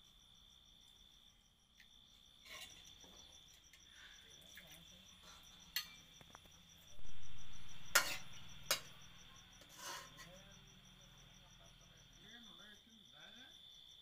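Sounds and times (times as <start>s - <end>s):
crickets chirping: 0.0s - 14.0s
low rumble: 6.9s - 9.2s.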